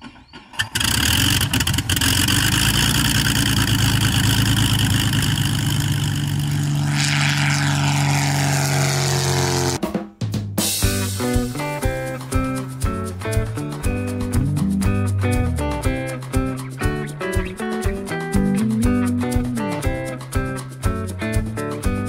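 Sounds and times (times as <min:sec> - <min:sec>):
propeller plane engine passing: 0:00.0 - 0:09.8.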